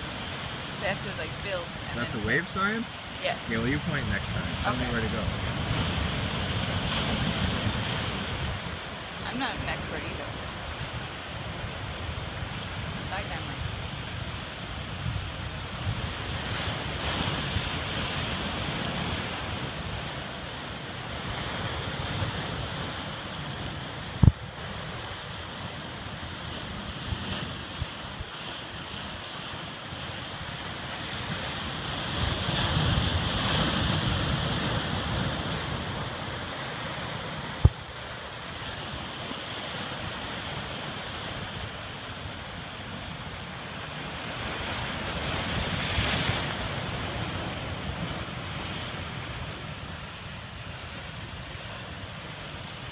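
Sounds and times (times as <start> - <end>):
surf breaking over rocks: 0.0 - 10.0, 14.3 - 52.9
wind buffeting microphone: 0.0 - 52.9.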